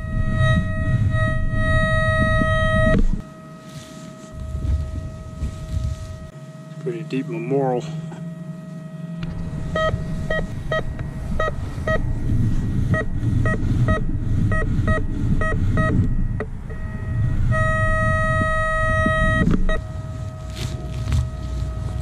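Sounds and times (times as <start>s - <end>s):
metal detector beeping: 0.0s - 12.2s, 12.9s - 22.0s
low rumbling noise: 0.0s - 22.0s.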